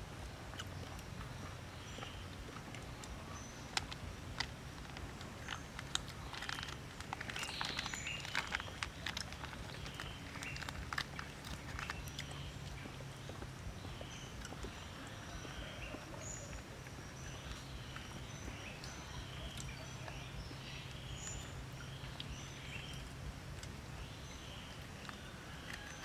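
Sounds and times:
hands rolling rice paper: 0:03.8 - 0:12.7.

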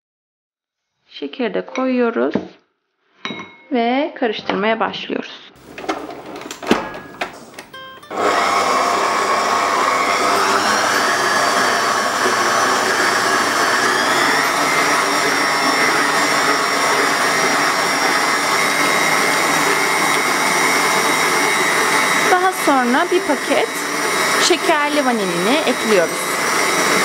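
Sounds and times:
stand mixer motor running: 0:08.1 - 0:27.0.

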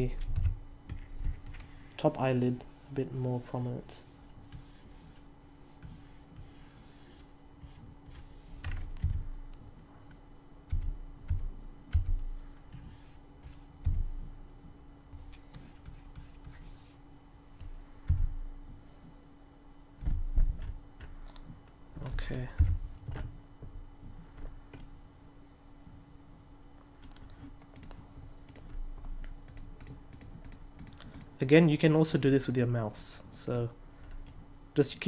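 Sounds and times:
low electrical hum: 0:00.0 - 0:35.0
soft low thumps: 0:17.6 - 0:18.8
computer mouse clicks: 0:29.4 - 0:31.3.

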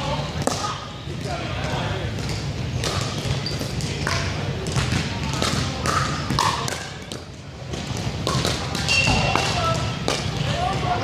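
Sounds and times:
paddles hitting plastic ball: 0:02.1 - 0:10.4.

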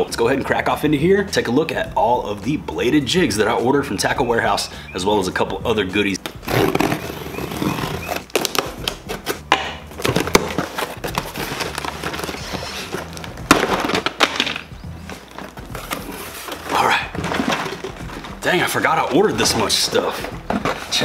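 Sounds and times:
packages rustling and clattering: 0:06.2 - 0:21.0
cardboard box tearing open: 0:06.5 - 0:09.4, 0:10.0 - 0:14.0, 0:15.8 - 0:17.8.

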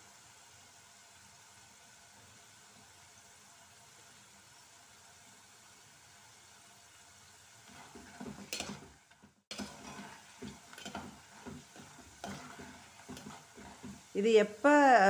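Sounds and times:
chips sizzling in hot oil: 0:00.0 - 0:15.0
spoon stirring and scraping: 0:07.6 - 0:14.2.

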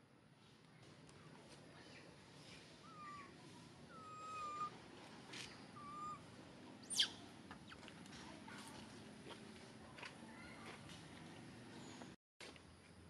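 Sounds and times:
sharp high descending monkey call: 0:03.9 - 0:04.7, 0:05.8 - 0:06.2
monkey whistle-like calls: 0:04.0 - 0:04.7, 0:05.8 - 0:06.2, 0:06.8 - 0:07.2.

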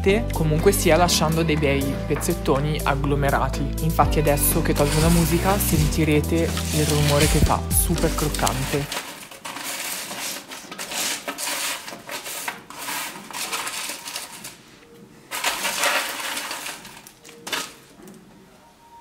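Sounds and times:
granola crackling and crunching: 0:04.8 - 0:18.1.

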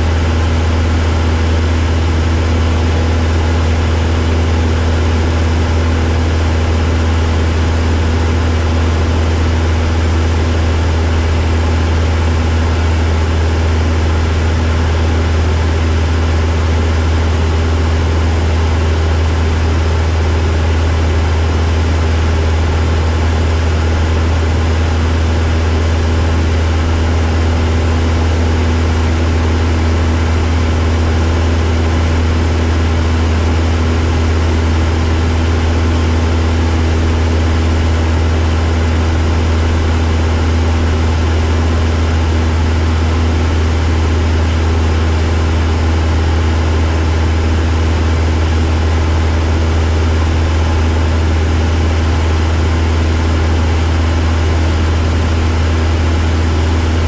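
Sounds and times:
propeller plane engine hum: 0:00.0 - 0:57.0.

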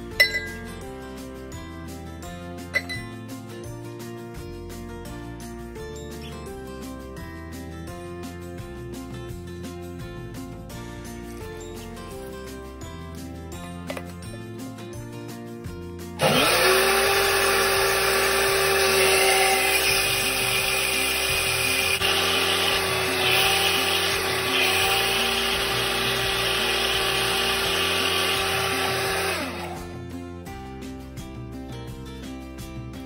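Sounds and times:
blender motor whining: 0:16.2 - 0:29.9.

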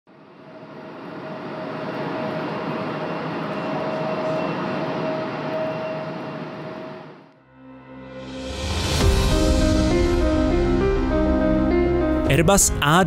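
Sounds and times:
jet airliner flying by: 0:00.1 - 0:07.4.

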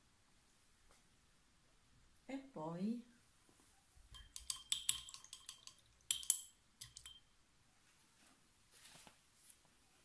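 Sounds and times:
painting tools clinking on palette: 0:04.1 - 0:07.3
faint brushing: 0:07.8 - 0:10.0.

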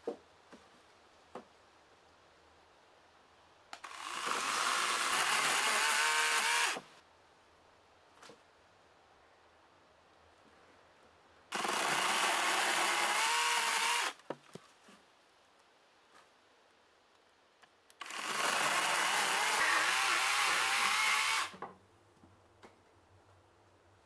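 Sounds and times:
electric chainsaw cutting wood: 0:03.8 - 0:06.8, 0:11.5 - 0:14.2, 0:18.0 - 0:21.6.

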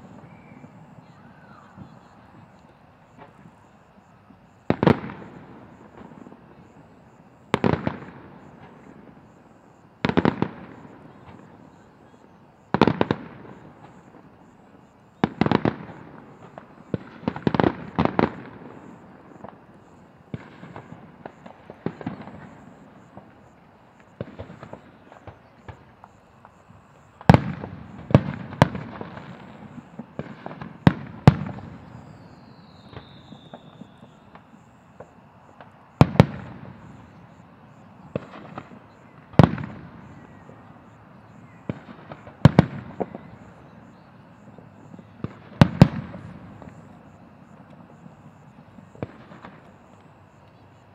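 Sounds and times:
firework crackling and rumbling: 0:00.0 - 0:50.9
falling whistle: 0:00.2 - 0:02.2, 0:32.0 - 0:34.2.

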